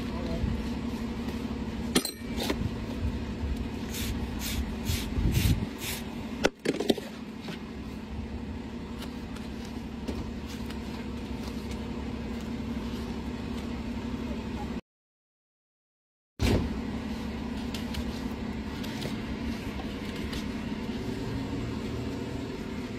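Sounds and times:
steady low hum: 0.0s - 14.8s, 16.4s - 22.9s.

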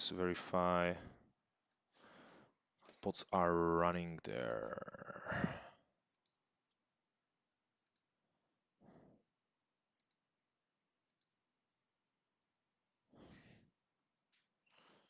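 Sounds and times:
computer mouse clicks: 6.1s - 8.1s, 10.0s - 10.2s, 11.0s - 11.3s.

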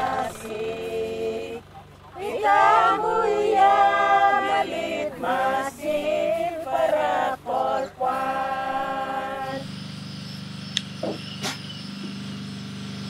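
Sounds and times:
group of voices singing: 0.0s - 9.7s
steady low hum: 0.0s - 13.0s.

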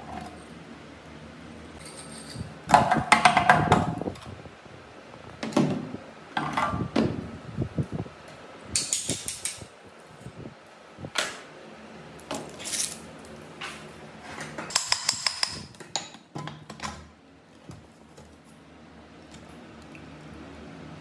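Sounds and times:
knocks and clinks: 1.8s - 2.9s.

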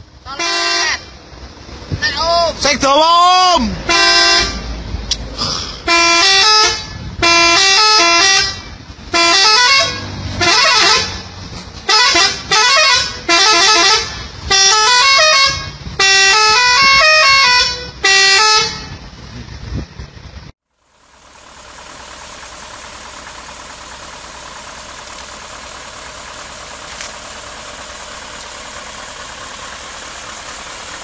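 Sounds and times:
truck musical horn: 0.0s - 1.5s, 3.4s - 5.0s, 5.6s - 19.2s
low engine rumble: 0.0s - 31.0s.

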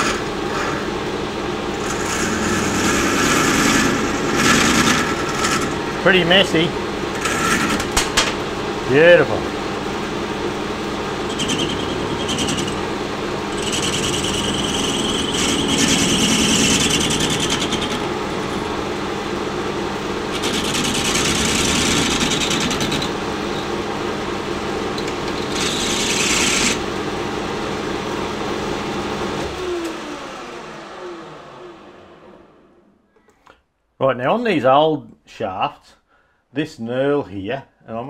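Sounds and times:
metal lathe motor running: 0.0s - 28.3s.

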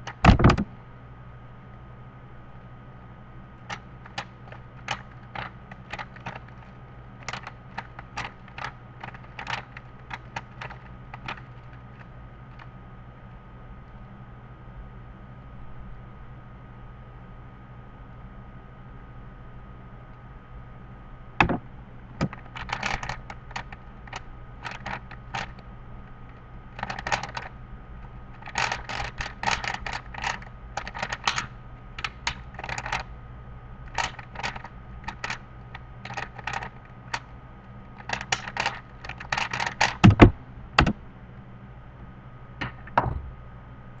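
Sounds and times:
heavier knocks: 0.2s - 0.7s, 21.4s - 21.6s, 40.0s - 41.0s, 42.6s - 43.4s
plastic cube clicking: 3.7s - 6.5s, 7.2s - 11.8s, 22.2s - 25.6s, 26.8s - 27.5s, 28.4s - 33.0s, 33.9s - 35.4s, 36.0s - 37.2s, 38.0s - 41.0s.

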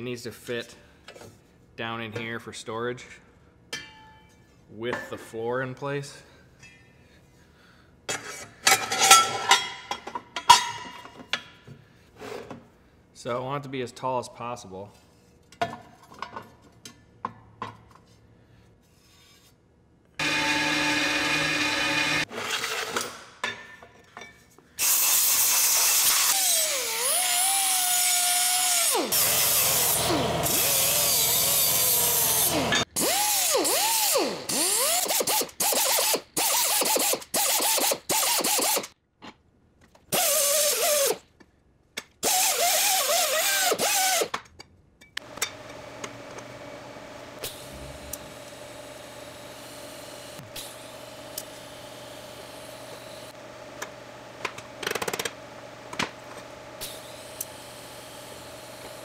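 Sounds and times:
power tool grinding metal: 20.2s - 22.3s, 24.8s - 38.9s, 42.2s - 44.3s, 47.4s - 53.4s.

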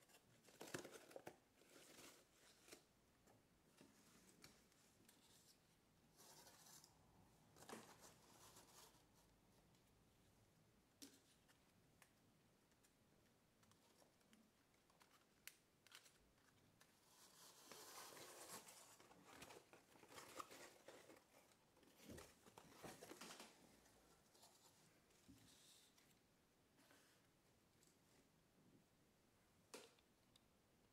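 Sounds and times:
paper rustling and crinkling: 0.0s - 2.9s, 13.6s - 26.1s.

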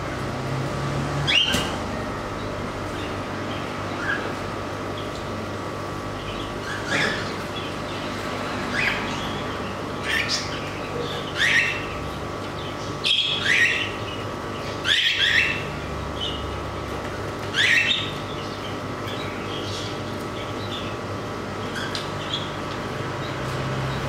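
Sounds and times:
low background hum: 0.0s - 24.0s
cockatiels chirping: 8.7s - 16.5s, 17.4s - 21.0s, 21.6s - 22.6s.

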